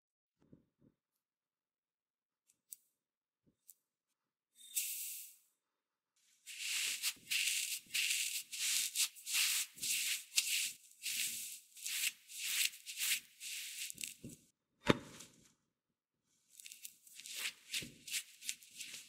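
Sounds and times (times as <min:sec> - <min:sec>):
sugar pouring into a bowl: 0:04.8 - 0:05.4, 0:06.5 - 0:14.2, 0:16.6 - 0:19.0.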